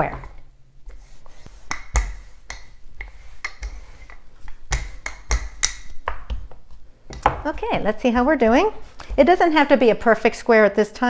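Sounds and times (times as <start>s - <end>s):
rolling pin clicking on board: 1.6s - 7.4s.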